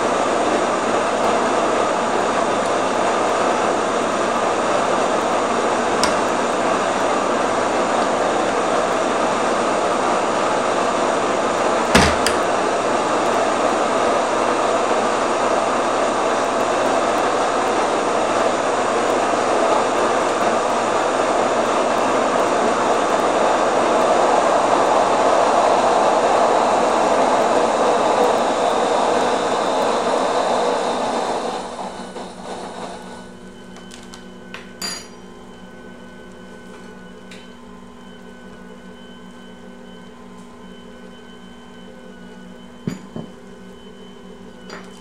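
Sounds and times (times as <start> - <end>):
stand mixer kneading dough: 0.0 - 34.8.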